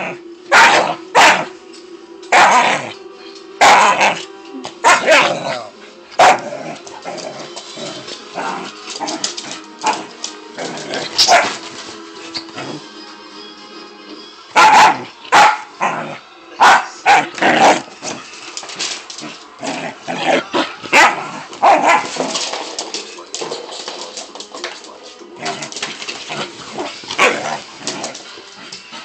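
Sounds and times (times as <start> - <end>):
faint music: 0.0 - 29.0
puppy barking: 0.5 - 1.5, 2.3 - 2.7, 3.6 - 4.1, 4.8 - 5.4, 6.2 - 6.5, 11.2 - 11.6, 14.6 - 15.7, 16.6 - 17.4, 20.9 - 22.2.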